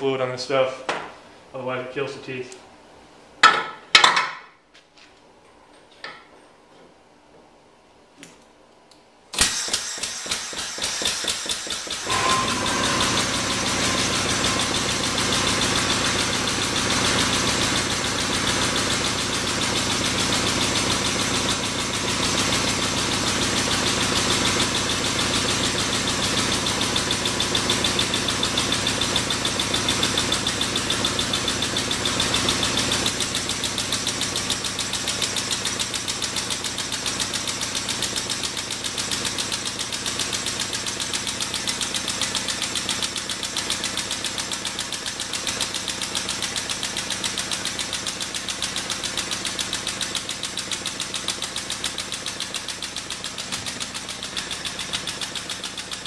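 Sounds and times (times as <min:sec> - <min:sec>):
hydraulic pump pulsing: 0:09.6 - 0:18.2, 0:52.2 - 0:56.0.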